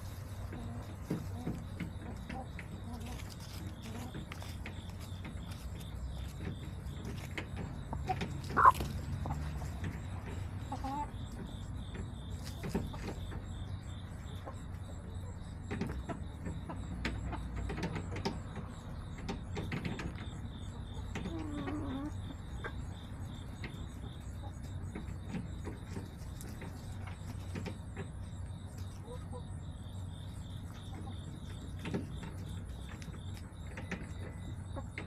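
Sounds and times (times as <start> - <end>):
hens clicking and scratching: 0.0 - 35.0
hen call: 8.0 - 8.8.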